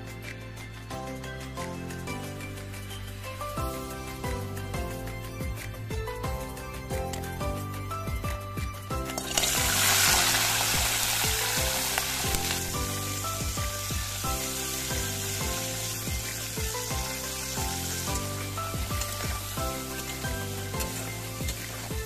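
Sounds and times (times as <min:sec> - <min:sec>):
background music: 0:00.0 - 0:22.0
crab frying in hot oil: 0:08.9 - 0:22.0.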